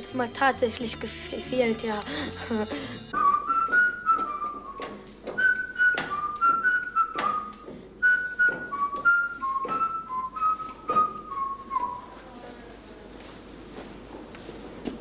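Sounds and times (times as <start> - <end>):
person whistling a tune: 3.1 - 12.1.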